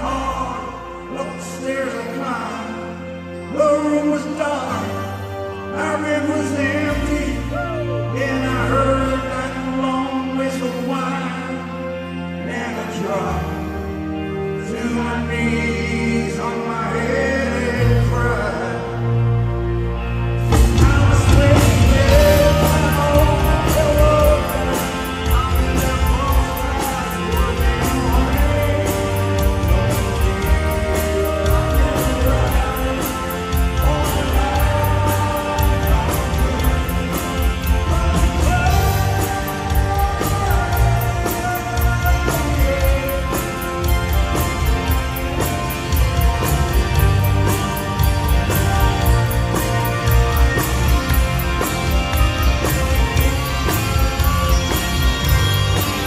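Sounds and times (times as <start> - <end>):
man singing: 0.0 - 19.5, 20.4 - 56.0
electric guitar: 4.4 - 56.0
drums playing a beat: 20.5 - 56.0.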